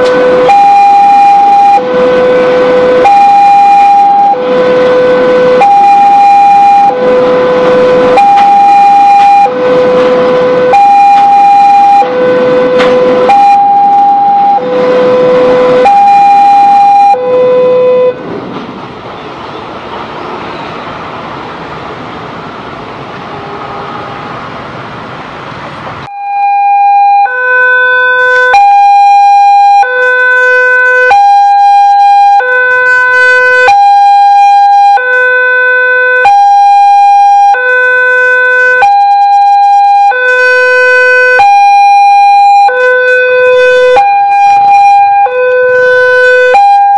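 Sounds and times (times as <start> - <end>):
two-tone level crossing alarm: 0.0 - 18.2, 26.1 - 46.9
train wagons rolling past: 18.2 - 26.1.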